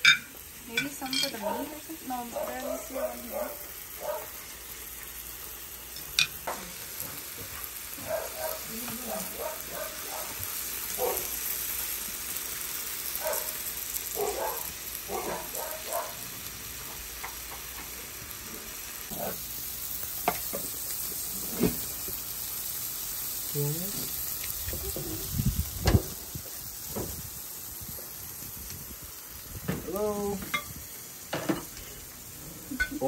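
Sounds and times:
pork sizzling on a grill: 0.0s - 33.0s.

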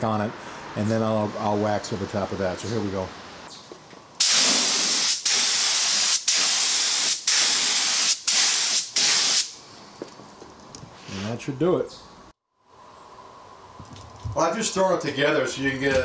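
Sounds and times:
spray gun hissing: 4.2s - 9.6s.

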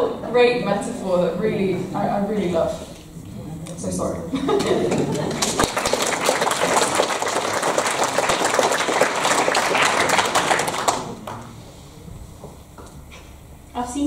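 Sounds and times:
audience applauding: 5.0s - 11.6s.

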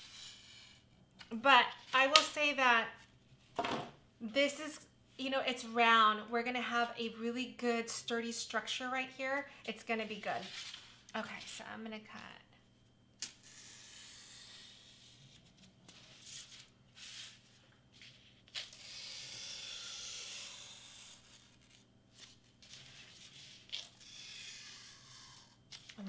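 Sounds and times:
knife cutting foam board: 18.6s - 26.0s.

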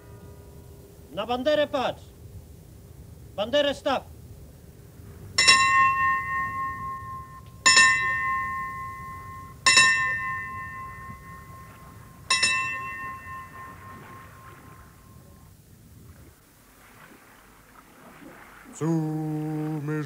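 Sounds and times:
brass ship's bell ringing: 5.4s - 15.5s.

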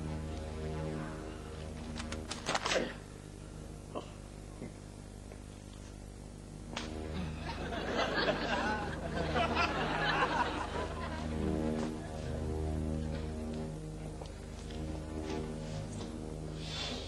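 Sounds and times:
steady low hum: 0.0s - 17.0s
audience laughter: 7.1s - 12.3s.

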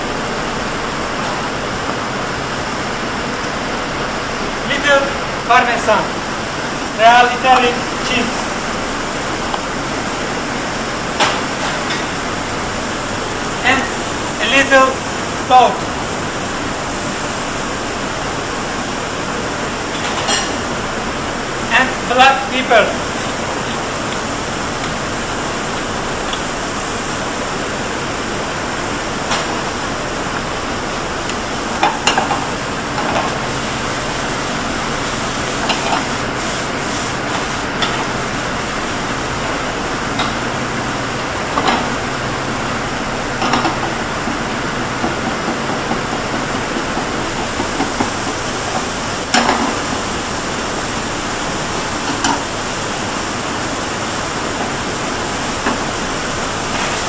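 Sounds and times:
gas range hiss: 0.0s - 57.0s
food sizzling in frying pans: 15.0s - 57.0s.

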